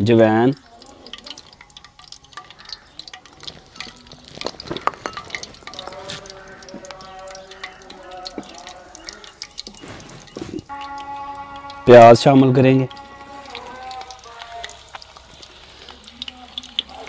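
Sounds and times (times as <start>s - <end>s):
seeds popping in hot oil: 0.0s - 17.0s
spatula stirring: 0.6s - 11.8s.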